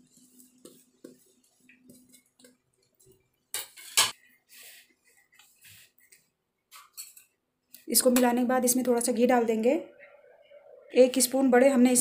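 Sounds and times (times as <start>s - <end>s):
hand mixing flour rustling: 0.0s - 3.4s.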